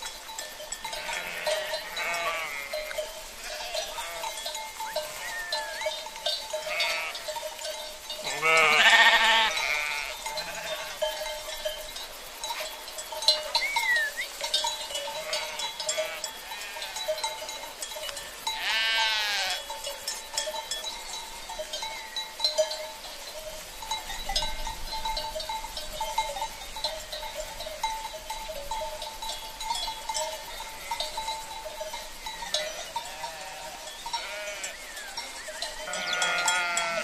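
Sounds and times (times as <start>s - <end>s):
sheep bleating: 0.9s - 4.4s, 5.0s - 5.9s, 6.6s - 7.4s, 8.2s - 11.0s, 15.2s - 17.0s, 18.6s - 19.6s, 32.7s - 34.8s, 35.9s - 37.0s.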